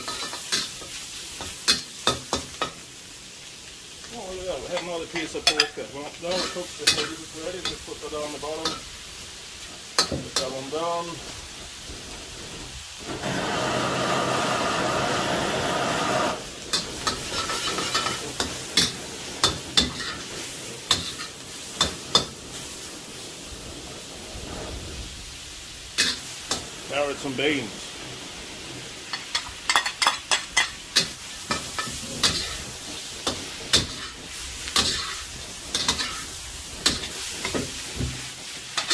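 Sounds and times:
metal spatula scraping wok: 0.0s - 2.8s, 4.6s - 8.9s, 15.8s - 22.8s, 26.0s - 26.7s, 29.1s - 38.9s
loud steady hiss: 0.0s - 38.9s
meat and onions sizzling in wok: 0.0s - 38.9s.

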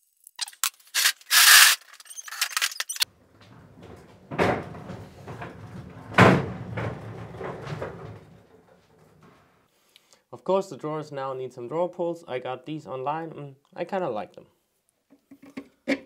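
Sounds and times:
objects clicking and clattering: 0.2s - 9.4s
loud scrape: 0.4s - 3.0s
cart casters rolling on concrete: 0.4s - 9.5s
cart bumps: 3.0s - 9.6s.

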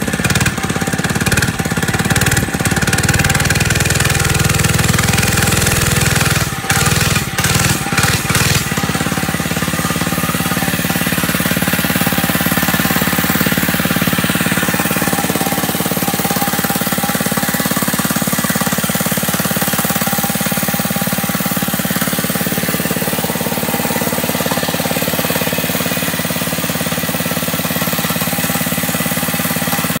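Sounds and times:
small engine running: 0.0s - 30.0s.

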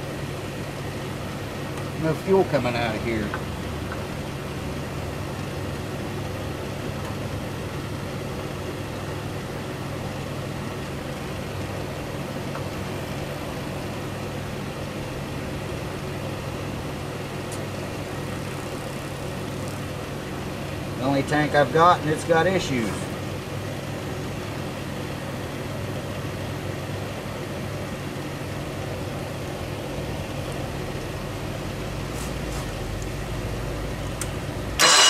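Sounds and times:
low mechanical hum: 0.0s - 35.0s.

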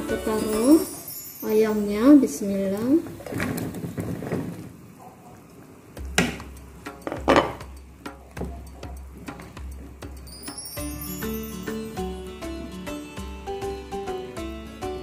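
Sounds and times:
spatula knocking and scraping wok: 6.0s - 10.4s.

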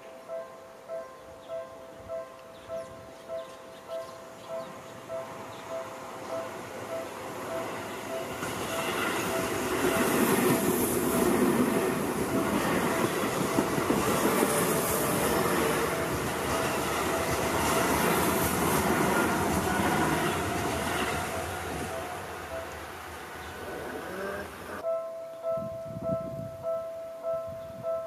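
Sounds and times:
train wheels rolling on rails: 4.5s - 24.8s.

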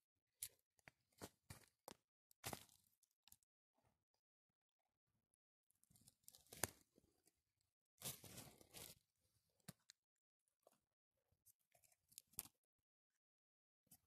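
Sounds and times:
crunching of dry leaves and twigs: 0.4s - 3.4s, 5.9s - 7.0s, 8.0s - 9.1s
twig cracking: 6.0s - 6.9s.

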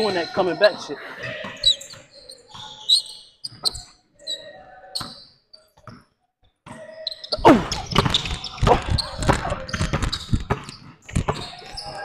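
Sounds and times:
sneakers squeaking on court: 0.0s - 12.0s
basketball bouncing on wooden floor: 7.7s - 12.0s.

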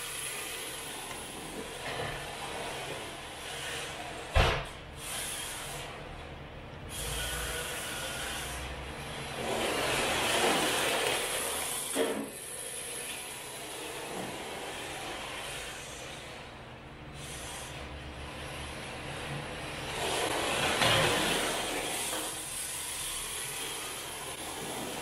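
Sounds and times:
rc car motor running: 6.9s - 16.2s
rc car tyres scrubbing on concrete: 9.3s - 11.8s.

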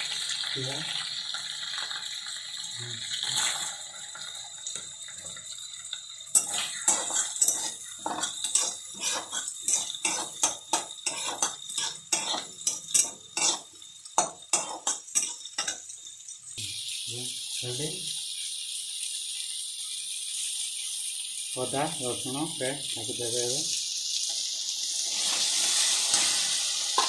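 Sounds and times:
vegetables sizzling in hot oil: 0.0s - 27.0s
metal spatula scraping a pan: 6.3s - 15.8s, 25.0s - 27.0s.

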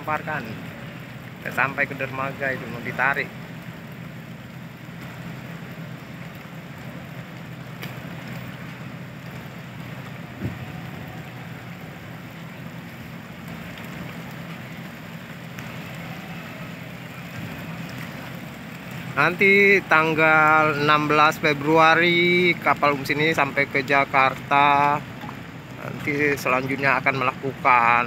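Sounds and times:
heavy rain falling: 0.0s - 28.0s
low steady hum: 0.0s - 28.0s.

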